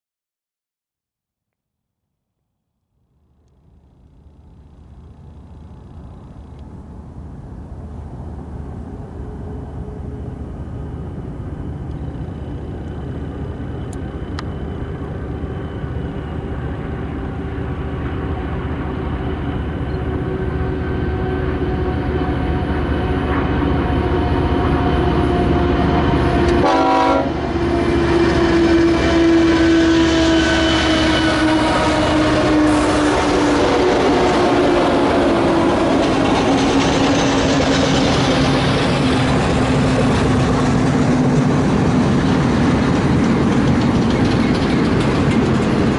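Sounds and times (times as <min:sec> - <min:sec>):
diesel locomotive engine drone: 0:02.9 - 0:45.9
steady humming tones: 0:03.0 - 0:37.2.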